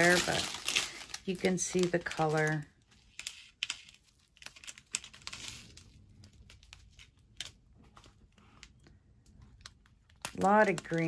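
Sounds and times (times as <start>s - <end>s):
plastic bags crinkling: 0.0s - 6.5s, 9.5s - 11.0s.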